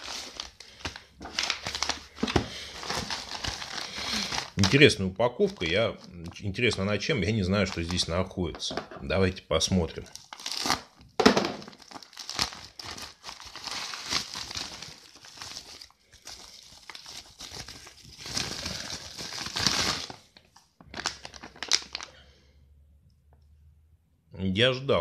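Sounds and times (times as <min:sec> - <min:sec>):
plastic packaging crinkling: 0:00.0 - 0:06.8, 0:07.5 - 0:08.2, 0:10.0 - 0:22.2.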